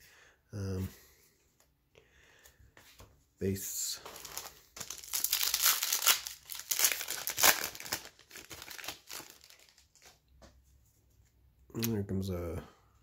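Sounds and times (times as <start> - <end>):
foil wrapper crinkling: 4.0 - 10.2.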